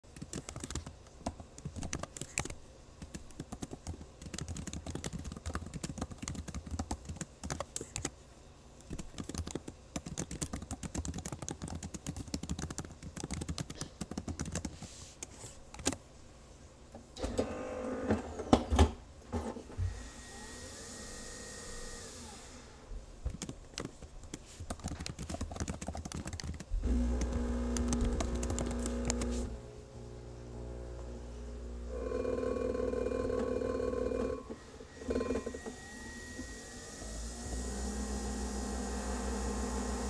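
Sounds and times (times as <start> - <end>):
computer keyboard typing: 0.0 - 8.2, 8.9 - 16.0, 23.3 - 29.4.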